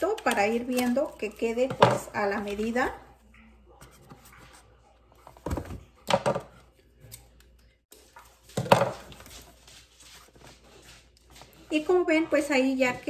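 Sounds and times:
knocks and rustles of handling: 3.7 - 11.9.

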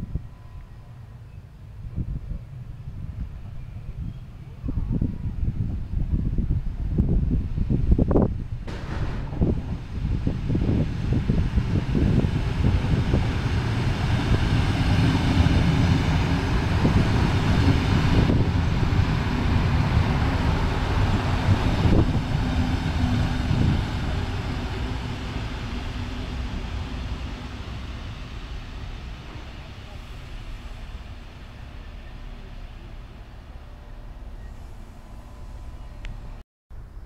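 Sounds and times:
train wheels rumbling on rail: 0.0 - 36.4
train motor hum: 6.8 - 36.4.

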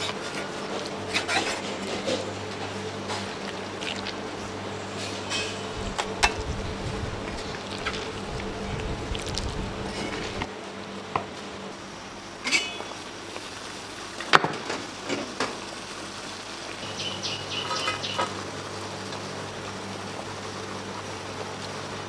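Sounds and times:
steady low hum: 0.0 - 13.2.

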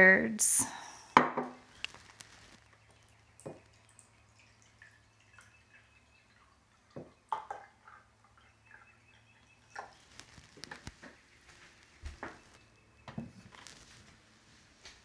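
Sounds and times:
water trickling into glass cup: 1.6 - 12.4.

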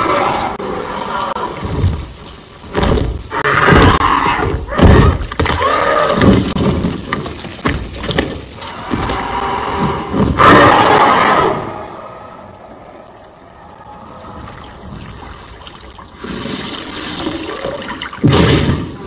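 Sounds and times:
loud creature cries: 0.0 - 1.6, 9.0 - 11.9.

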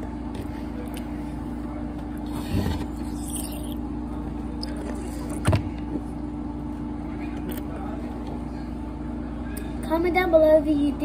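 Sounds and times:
biting and sucking mouth noises: 2.2 - 3.8, 4.6 - 5.4.

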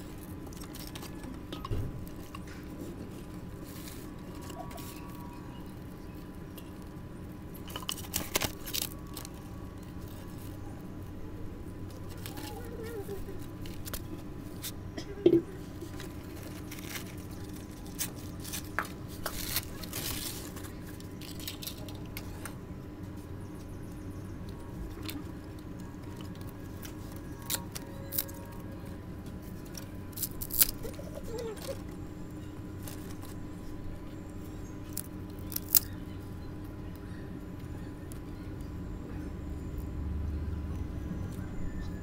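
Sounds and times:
paper rustling: 15.7 - 21.9.

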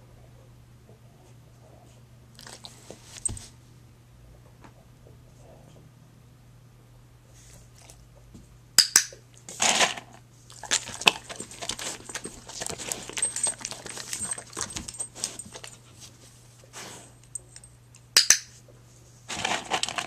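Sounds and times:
close rustling: 10.6 - 17.5.

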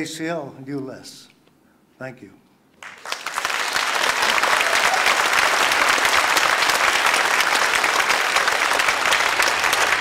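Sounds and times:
large audience applauding: 2.8 - 10.0.

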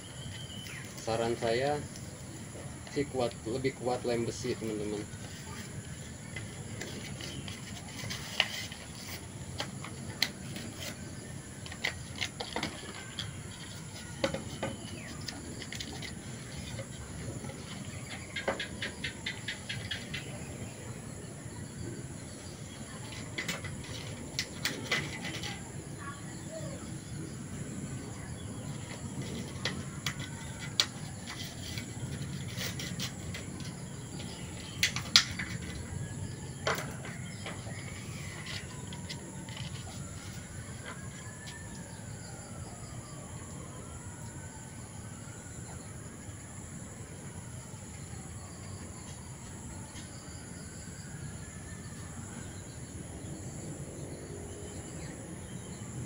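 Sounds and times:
bird calls: 11.6 - 27.2.

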